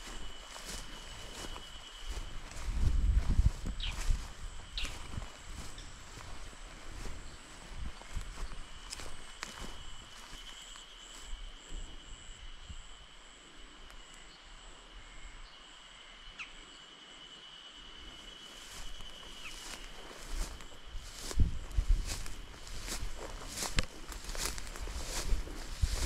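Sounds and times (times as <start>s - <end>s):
footsteps: 0.0s - 10.6s, 18.6s - 26.0s
high-pitched insect drone: 0.0s - 26.0s.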